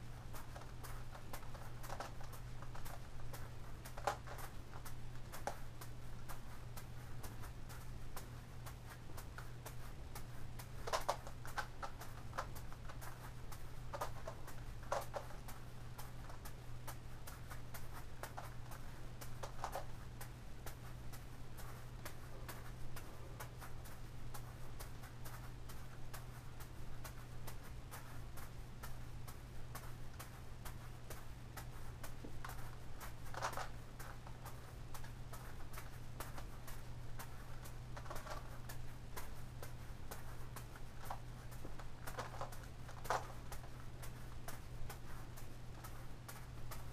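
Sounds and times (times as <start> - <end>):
steady low hum: 0.0 - 46.9
plastic puzzle clicking: 33.3 - 33.8, 42.1 - 43.4.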